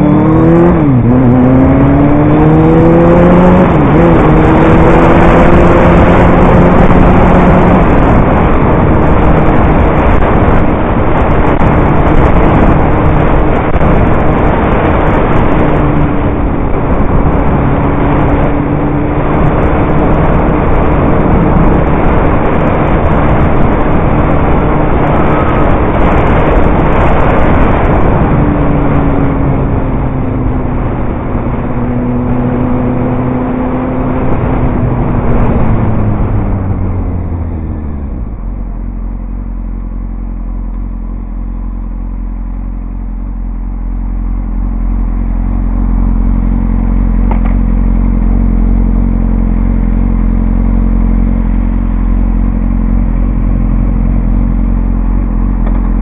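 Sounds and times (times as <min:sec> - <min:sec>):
wind rush: 0:00.0 - 0:40.6
motorcycle engine running: 0:00.0 - 0:56.0.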